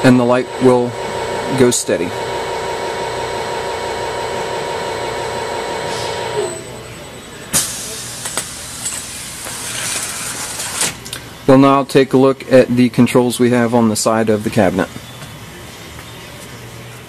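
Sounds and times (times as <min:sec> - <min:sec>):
welding machine motor whining drone: 0:00.0 - 0:11.1
machine clunk: 0:07.5 - 0:11.0.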